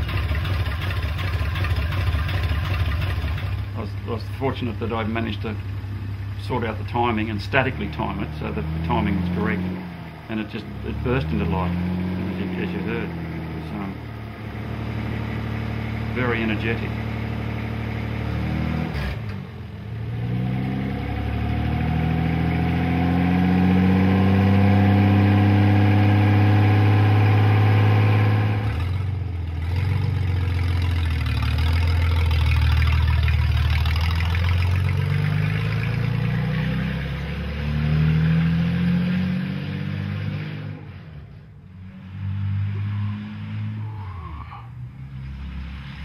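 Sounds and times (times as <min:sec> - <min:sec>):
car accelerating: 0:00.0 - 0:46.0
car engine revving: 0:00.0 - 0:46.0.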